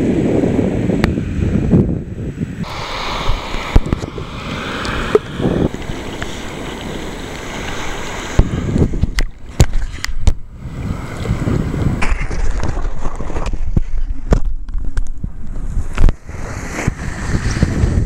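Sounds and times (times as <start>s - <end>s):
low rumble: 2.0s - 7.0s
sea water sloshing and splashing: 2.6s - 14.9s.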